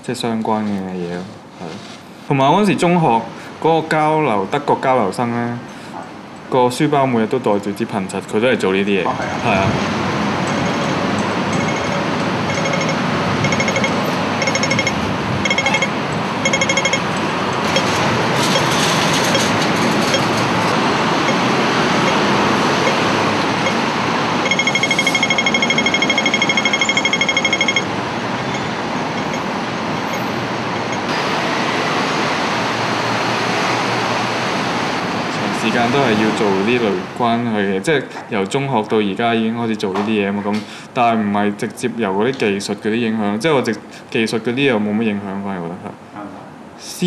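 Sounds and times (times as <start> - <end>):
street traffic: 0.0 - 47.0
crossing signal beeping: 10.4 - 31.2.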